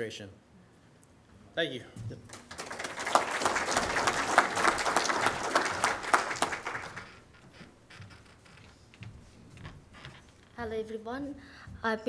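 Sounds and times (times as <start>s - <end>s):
audience applauding: 2.2s - 7.5s.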